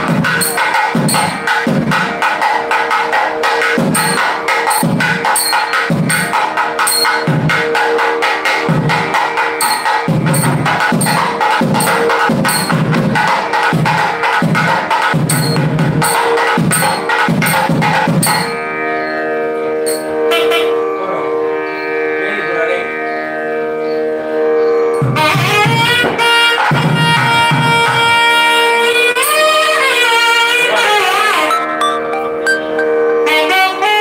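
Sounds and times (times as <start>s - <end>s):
fast drum rhythm: 0.0s - 18.6s
steady drone: 0.0s - 26.3s
sustained melodic line: 0.0s - 26.6s, 30.2s - 34.0s.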